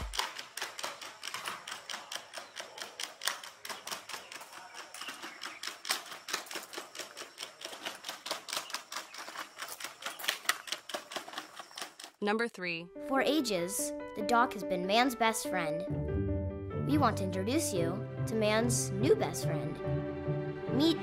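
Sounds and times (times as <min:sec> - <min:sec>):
robot feet tapping on stone steps: 0:00.0 - 0:12.3.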